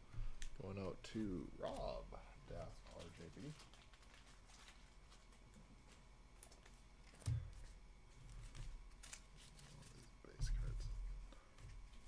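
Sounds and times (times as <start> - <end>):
trading cards clicking and rustling: 2.6 - 7.8.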